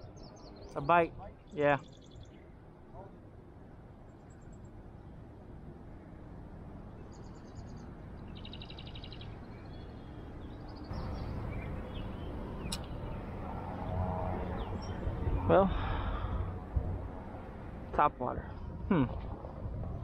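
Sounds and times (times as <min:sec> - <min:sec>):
songbirds trilling: 0:00.0 - 0:03.2, 0:06.9 - 0:16.4
low rumbling noise: 0:10.8 - 0:20.0.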